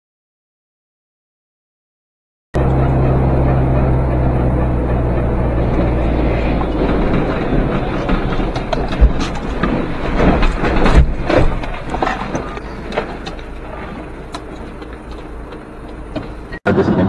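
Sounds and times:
engine and road rumble: 2.6 - 17.0
heavy knocks and scraping: 2.6 - 17.0
debris clattering on road: 4.9 - 17.0.

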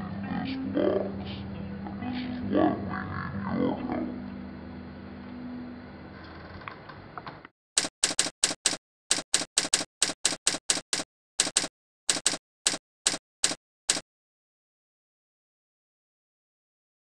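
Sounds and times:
faint room hum: 0.0 - 7.5
typewriter key clacks: 7.8 - 14.0.

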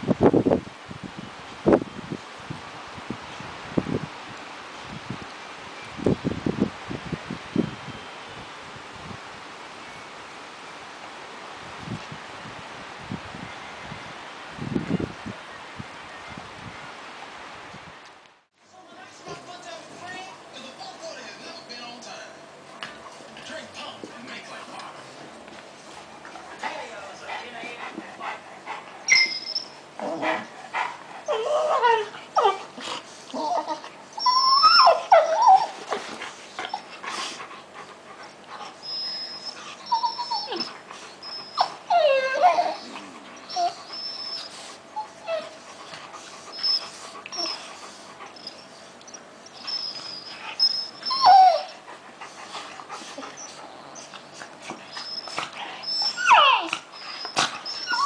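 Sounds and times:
dogs whining and yelping: 29.0 - 58.0.

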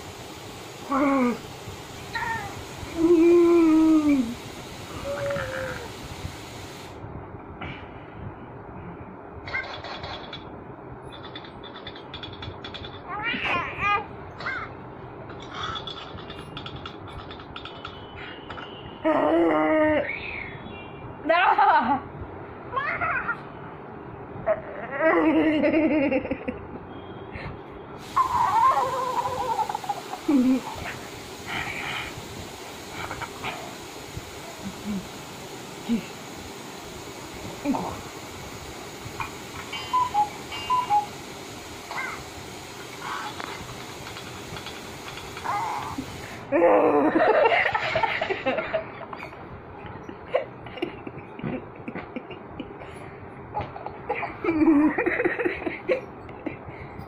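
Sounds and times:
giggling laughter: 46.8 - 52.9, 53.6 - 56.7.

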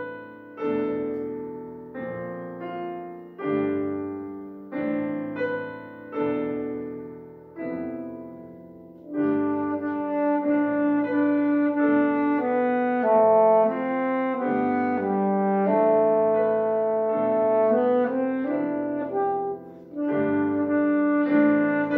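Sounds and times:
grand piano chords: 0.0 - 21.9
saxophone melody: 9.0 - 21.9.

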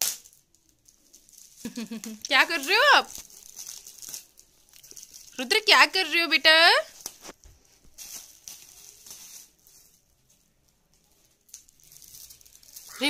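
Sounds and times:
plastic packaging crinkling: 0.0 - 5.9, 6.8 - 13.0.

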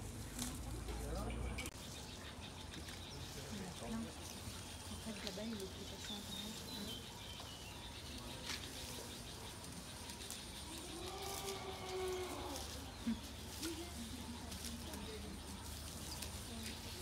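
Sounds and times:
outdoor background: 0.0 - 17.0
elephant calf calling: 10.2 - 13.8.

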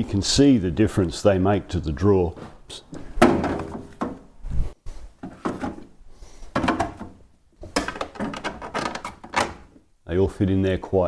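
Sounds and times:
plastic trays knocking and scraping: 2.9 - 4.4, 5.0 - 9.8.

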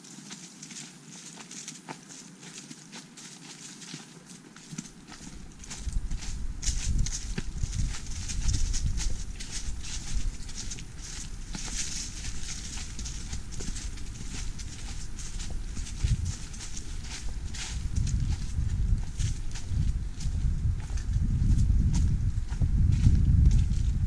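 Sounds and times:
footsteps crunching dry leaves: 0.0 - 24.0
low rumble: 5.4 - 24.0.

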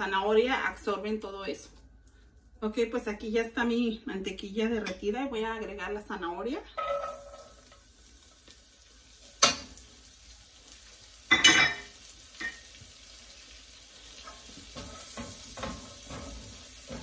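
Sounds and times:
vegetables sizzling in butter: 6.8 - 17.0.

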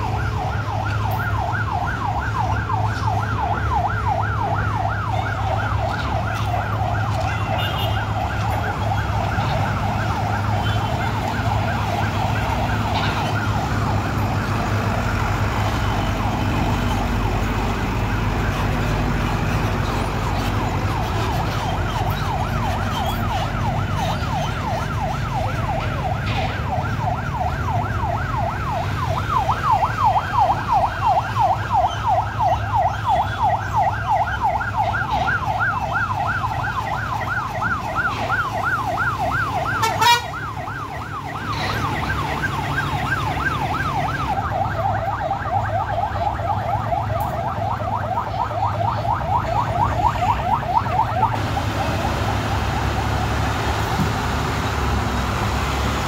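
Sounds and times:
electronic siren yelping: 21.0 - 53.1.

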